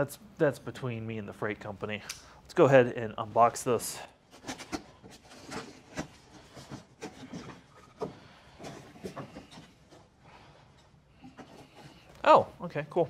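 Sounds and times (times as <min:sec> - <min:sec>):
cardboard flaps rustling: 0:04.3 - 0:10.1.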